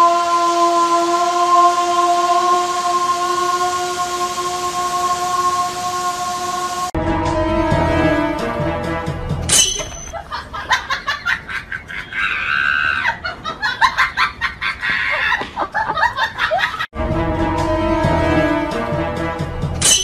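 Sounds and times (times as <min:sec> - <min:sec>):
background music: 0:06.9 - 0:10.1, 0:17.0 - 0:20.0
high-pitched laughing and squealing: 0:10.0 - 0:16.9.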